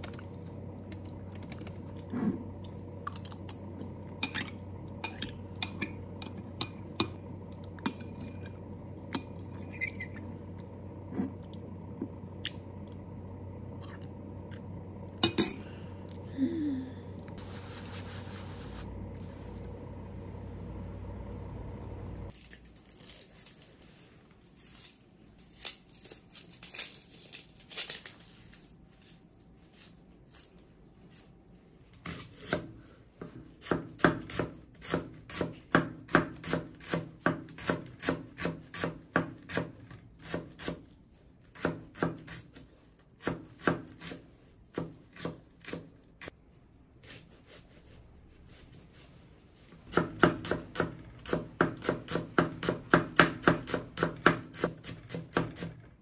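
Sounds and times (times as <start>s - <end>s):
steady hum: 0.0s - 22.3s.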